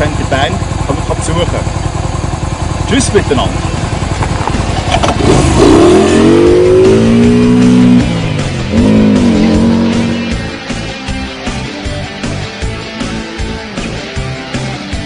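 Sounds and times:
trike engine revving: 0.0s - 11.2s.

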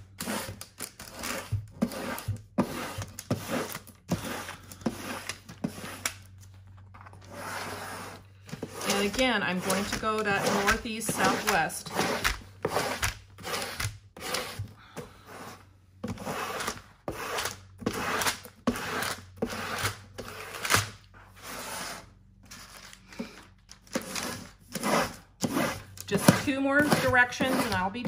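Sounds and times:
plastic squeegee rubbing paper: 7.2s - 14.7s, 24.0s - 28.0s.

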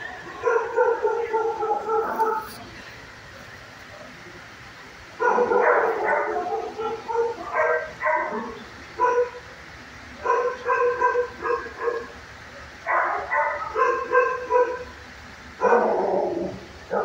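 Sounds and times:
dog barking and yipping: 0.4s - 2.6s, 5.2s - 9.4s, 10.2s - 12.2s, 12.9s - 14.9s, 15.6s - 16.2s.

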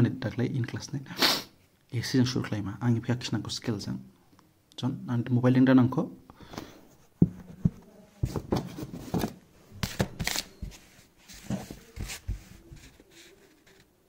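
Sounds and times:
handling rustles and knocks: 6.9s - 13.9s.

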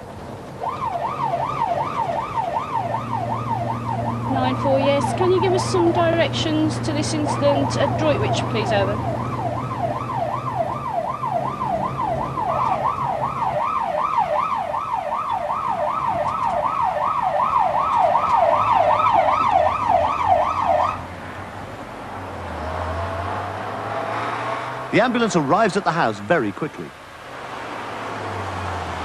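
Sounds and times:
ambulance siren yelping: 0.6s - 21.0s.

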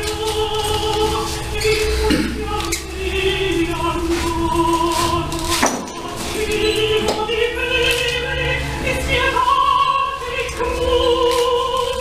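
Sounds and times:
voices singing long notes: 0.0s - 12.0s.

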